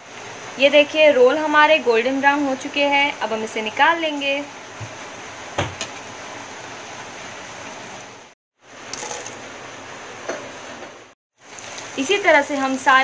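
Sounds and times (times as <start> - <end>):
bread sizzling in hot oil: 11.3 - 13.0.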